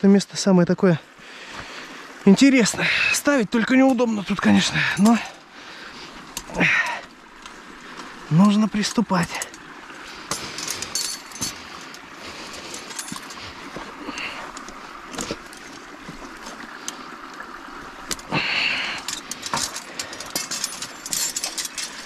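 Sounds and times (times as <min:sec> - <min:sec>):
dry sticks rustling and crackling: 0:01.5 - 0:22.0
metal trap clinking: 0:10.3 - 0:11.9, 0:12.6 - 0:13.4, 0:18.8 - 0:22.0.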